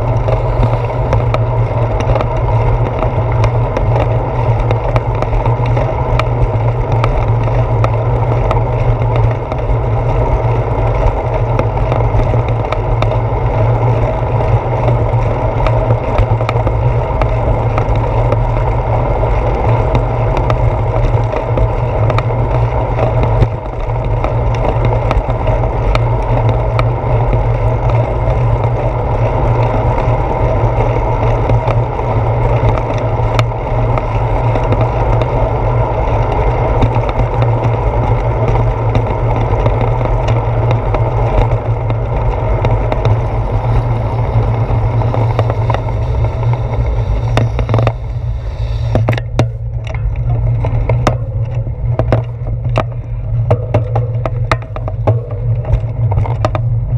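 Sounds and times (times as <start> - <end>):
tyres clicking over bumps: 0.0 - 56.9
wind and road rumble: 0.0 - 56.9.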